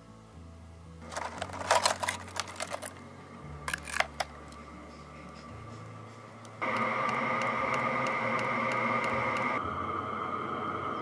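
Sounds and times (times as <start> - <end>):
heater blower whine: 1.0 - 11.0.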